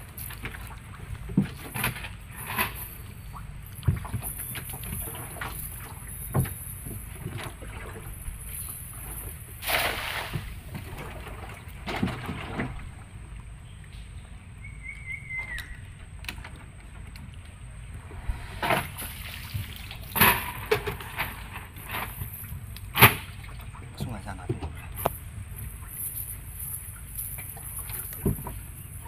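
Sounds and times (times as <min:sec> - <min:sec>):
water splashing and dripping: 0:00.0 - 0:14.2, 0:14.9 - 0:29.0.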